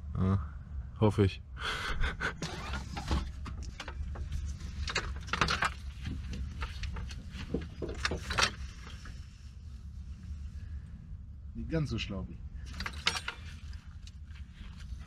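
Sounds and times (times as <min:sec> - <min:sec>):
metal frame clicking and rattling: 0:02.5 - 0:09.2, 0:12.6 - 0:15.0
steady low rumble: 0:03.2 - 0:15.0.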